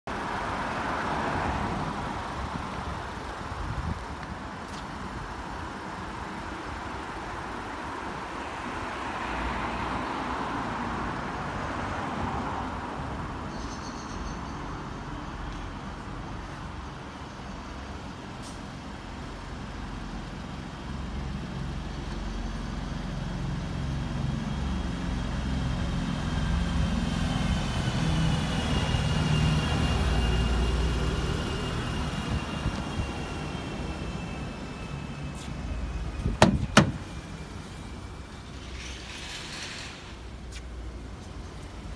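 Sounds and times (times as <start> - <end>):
traffic rumble: 0.1 - 41.9
heavy engine passing close: 23.1 - 41.9.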